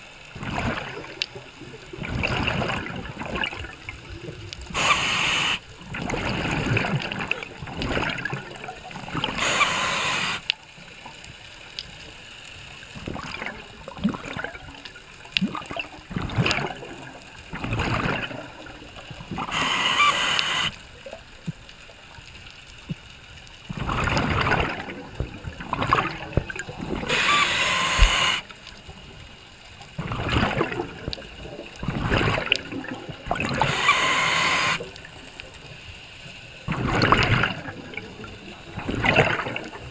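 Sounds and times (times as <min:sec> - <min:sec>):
gurgling exhaled bubbles: 0:00.0 - 0:10.6, 0:12.8 - 0:21.6, 0:23.7 - 0:29.2, 0:29.9 - 0:35.8, 0:36.6 - 0:39.9
regulator hissing inhale: 0:04.7 - 0:05.6, 0:09.4 - 0:10.5, 0:27.1 - 0:28.5.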